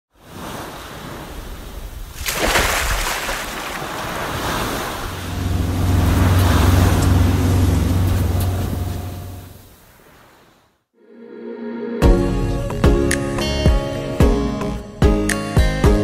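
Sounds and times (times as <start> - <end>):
ocean waves breaking: 0.1 - 10.8
low steady hum: 5.0 - 9.7.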